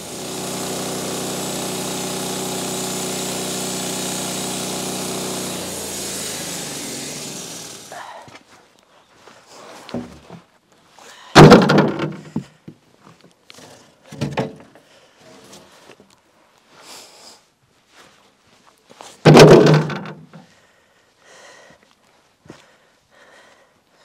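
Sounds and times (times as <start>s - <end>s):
wooden boards dropped on stack: 11.4s - 12.5s, 14.1s - 14.8s, 19.2s - 20.3s.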